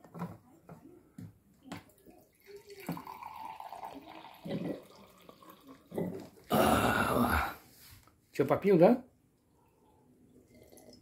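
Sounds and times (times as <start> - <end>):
water pouring into a glass: 2.2 - 6.5, 10.4 - 11.0.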